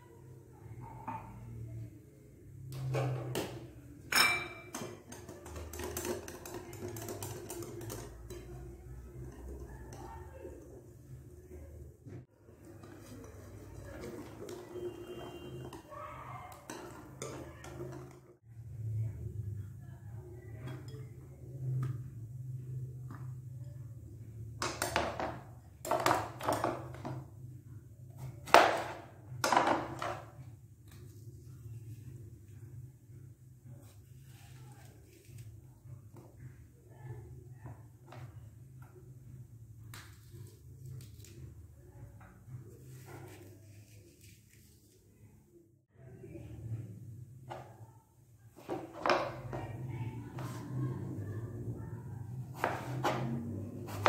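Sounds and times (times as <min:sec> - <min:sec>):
sharp ringing clink on glass: 0:04.1 - 0:04.7
knife cutting apple on plastic board: 0:52.5 - 0:54.0.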